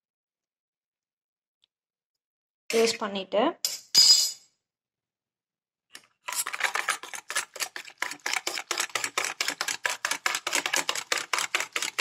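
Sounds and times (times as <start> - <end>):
steel spoon scraping a bowl: 6.3 - 12.0.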